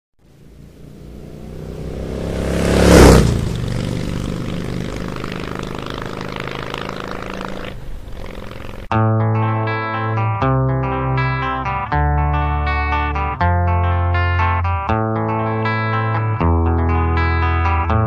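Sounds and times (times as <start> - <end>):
vehicle engine running: 0.2 - 8.9.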